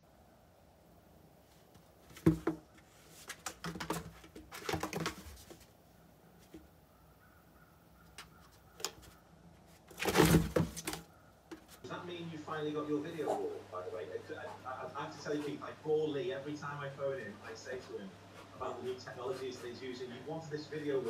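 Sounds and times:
cardboard box scraping and rustling: 9.9 - 11.0.

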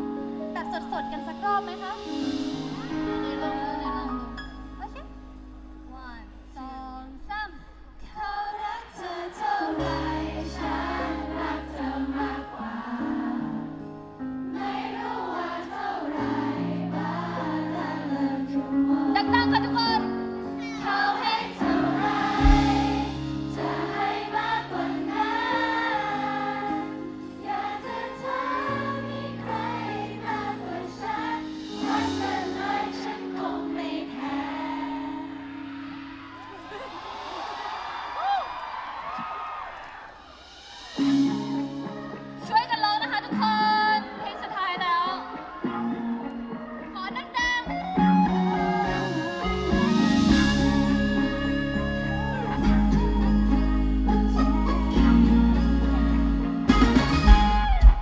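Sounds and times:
pop song with female vocals: 6.5 - 14.0, 17.8 - 20.0, 41.1 - 45.6, 52.2 - 57.8
held bass notes: 22.0 - 23.8, 48.0 - 58.0.

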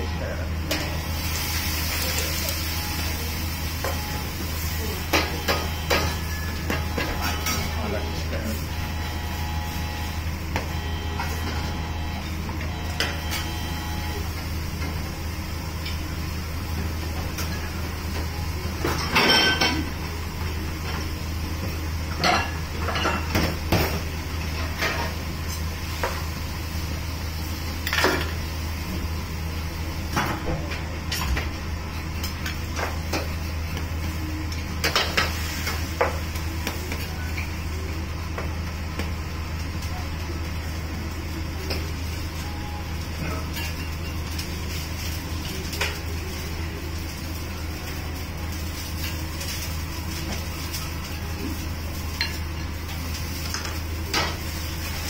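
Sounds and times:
steady low hum: 0.0 - 24.4.

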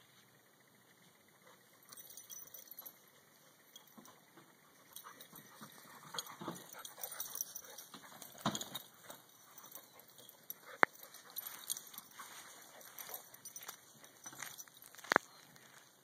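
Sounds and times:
rustling on grass: 11.0 - 15.9.

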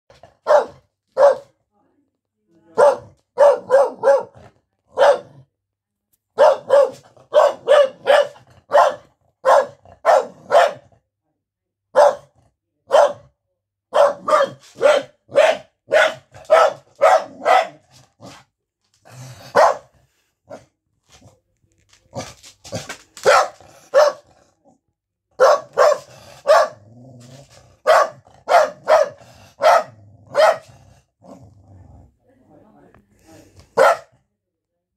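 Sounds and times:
puppy barking: 0.4 - 1.5, 2.8 - 5.4, 6.4 - 10.9, 11.9 - 12.3, 12.9 - 13.3, 13.9 - 17.9, 19.5 - 19.9, 23.2 - 24.3, 25.3 - 26.8, 27.8 - 30.7, 33.7 - 34.1.

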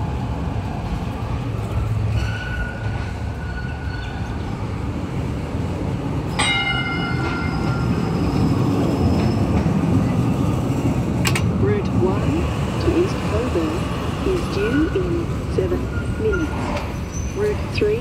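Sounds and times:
tram rolling rumble: 0.0 - 18.0
tram gong ringing: 6.3 - 8.5.

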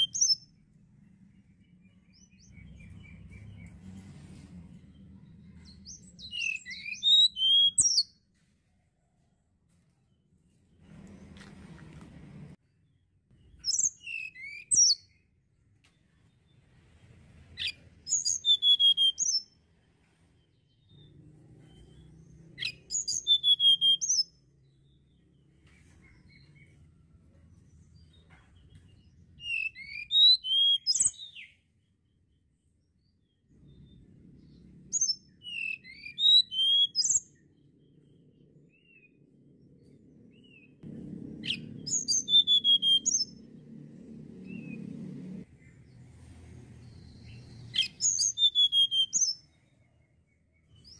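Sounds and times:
bird singing high whistled notes: 0.0 - 0.6, 1.4 - 3.9, 5.0 - 8.2, 12.9 - 15.3, 17.6 - 19.7, 21.7 - 26.8, 27.7 - 31.9, 33.6 - 39.4, 41.4 - 43.6, 46.8 - 50.9.

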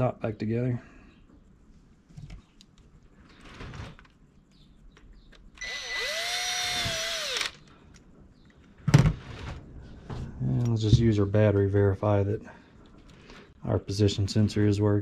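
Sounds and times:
cordless drill driving screw: 5.6 - 7.6.

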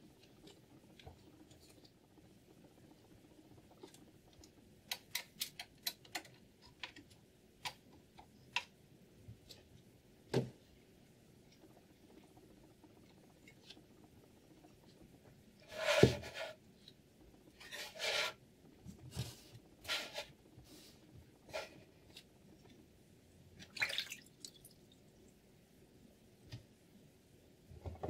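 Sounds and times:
rubbing scraping sounds: 15.6 - 16.6, 17.6 - 18.4, 19.1 - 20.9.

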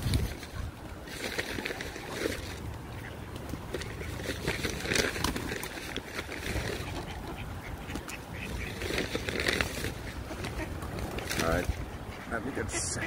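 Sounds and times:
pigeon wings flapping: 3.4 - 11.8
ducks quacking: 6.2 - 13.0.

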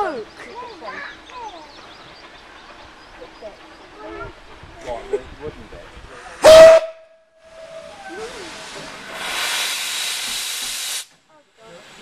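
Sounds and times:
steady steam hiss: 0.0 - 6.6, 7.4 - 12.0
steam locomotive whistle blast: 6.4 - 11.0.

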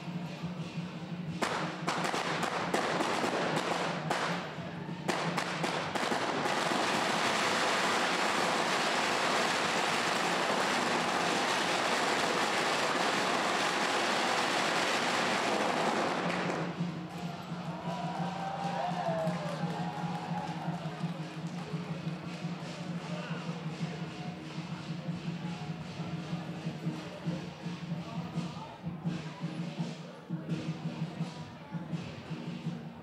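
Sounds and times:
firecrackers exploding: 1.3 - 17.3.

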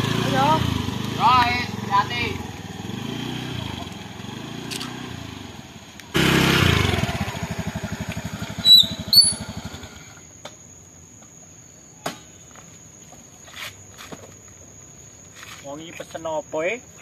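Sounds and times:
scooter engine running: 0.0 - 10.2
insect trill: 0.1 - 17.0
high squeaks: 8.5 - 9.8.

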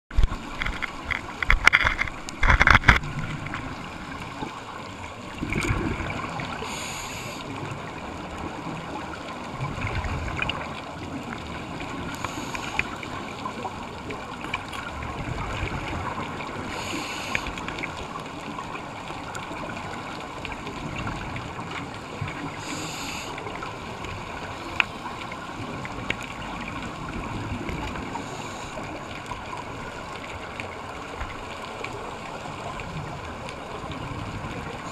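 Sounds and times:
underwater rush: 0.1 - 34.9
gurgle of exhaled bubbles: 0.2 - 34.9
regulator inhalation hiss: 6.6 - 7.5, 16.7 - 17.6, 22.6 - 23.4.

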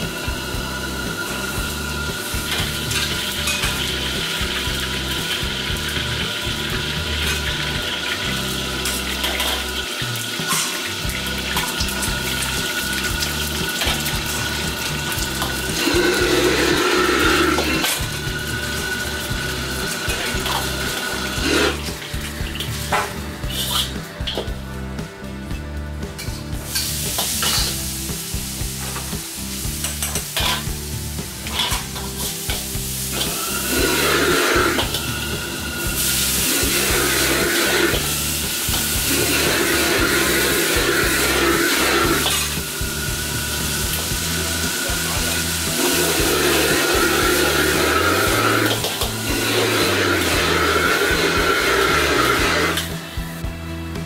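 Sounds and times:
egg sizzling in hot oil: 0.0 - 24.6, 26.2 - 53.5
tap water running into a pot: 0.0 - 24.6, 26.0 - 53.2
metal ladle scraping a wok: 8.4 - 24.5, 26.2 - 28.0, 28.6 - 53.0.

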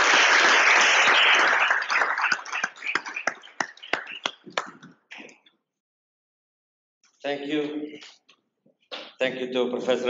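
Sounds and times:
audience applause: 0.0 - 4.8.

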